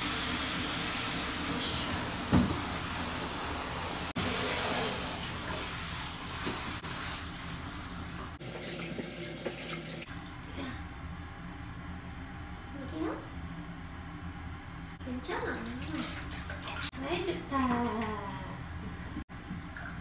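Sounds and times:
water spraying from shower head: 0:00.0 - 0:08.4.

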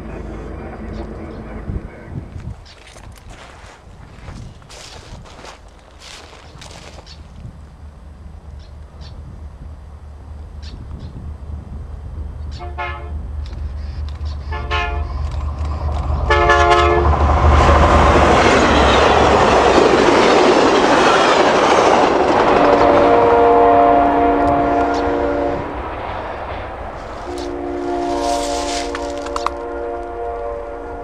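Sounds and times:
diesel locomotive engine rumble: 0:00.0 - 0:31.0
train wheel noise: 0:00.0 - 0:31.0
train air horn blasts: 0:12.5 - 0:13.2, 0:14.4 - 0:15.3, 0:16.2 - 0:17.2, 0:22.5 - 0:25.9, 0:27.0 - 0:31.0.

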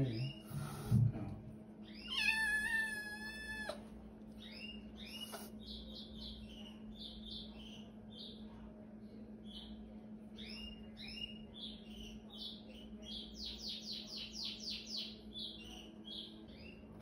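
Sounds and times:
kitten meowing: 0:02.0 - 0:03.8.

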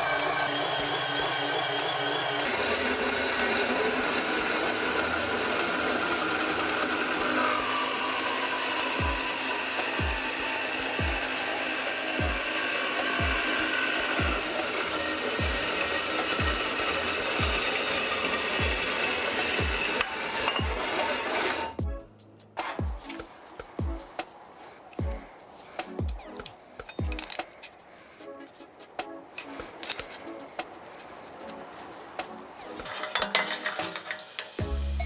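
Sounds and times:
band saw cutting steel: 0:00.0 - 0:21.8, 0:22.6 - 0:35.0
low thumping background music: 0:15.4 - 0:15.8, 0:21.8 - 0:24.4, 0:25.0 - 0:27.4, 0:34.6 - 0:35.0.

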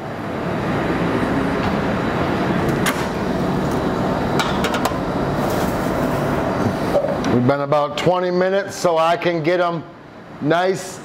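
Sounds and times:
rushing kitchen background noise: 0:00.0 - 0:11.0
oven door opening: 0:02.7 - 0:03.2.

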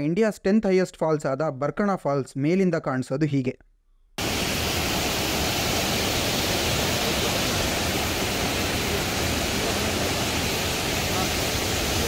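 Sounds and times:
waterfall rushing: 0:04.2 - 0:12.0.

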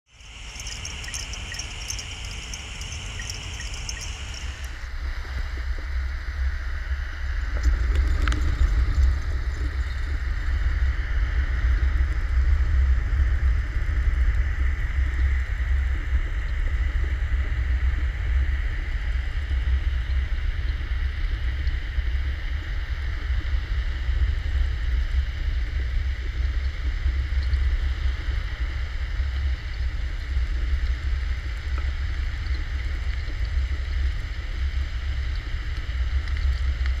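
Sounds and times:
water rushing underwater: 0:00.1 - 0:04.7
high steady whine: 0:00.1 - 0:04.9.

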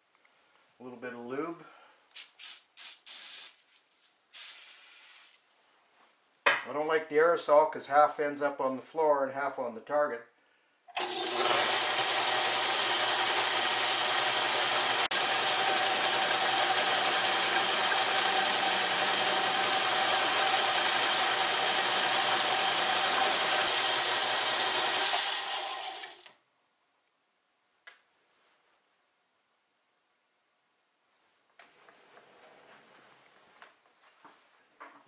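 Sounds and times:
metal lathe whining: 0:11.0 - 0:26.3.

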